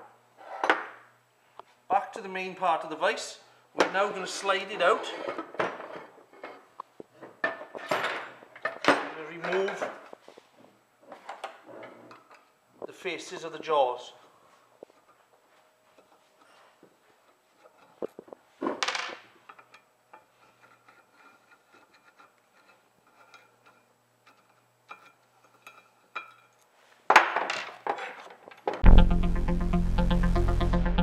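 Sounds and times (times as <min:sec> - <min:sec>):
electronic music: 0:28.8 - 0:31.0.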